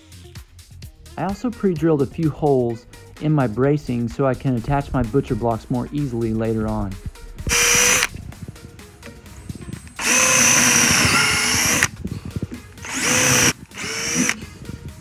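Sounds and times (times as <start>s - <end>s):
power drill boring into wood: 7.4s - 8.1s, 9.9s - 11.9s, 12.8s - 14.5s.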